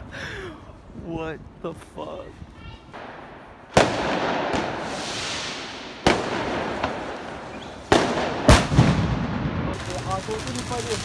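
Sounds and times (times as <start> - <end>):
firework bangs echoing: 2.9 - 11.0.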